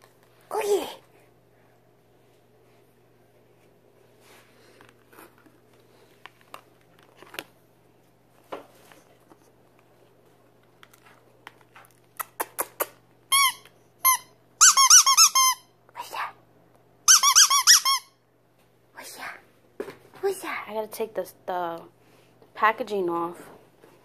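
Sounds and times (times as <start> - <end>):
dog toy squeaking: 13.3 - 15.6, 17.1 - 18.1.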